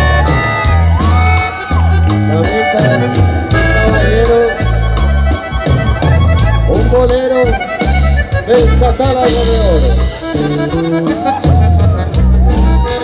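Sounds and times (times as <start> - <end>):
accordion melody: 0.0 - 13.0
guitar: 0.0 - 13.0
pulsing bass line: 0.0 - 13.0
steady drum beat: 0.0 - 13.0.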